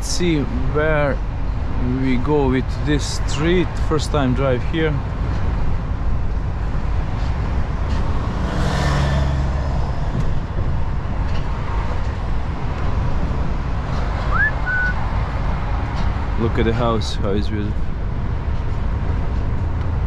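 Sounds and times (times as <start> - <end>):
truck engine and road rumble: 0.0 - 20.0
short rising chirp: 14.3 - 15.0.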